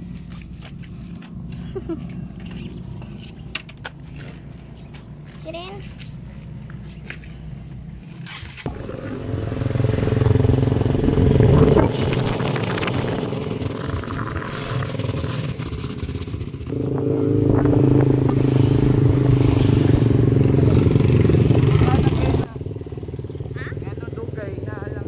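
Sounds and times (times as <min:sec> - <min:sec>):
motorcycle engine accelerating: 0:08.1 - 0:25.0.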